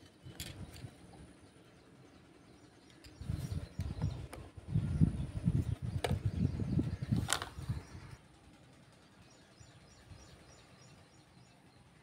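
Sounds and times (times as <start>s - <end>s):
wind rumbling on microphone: 3.2s - 8.2s.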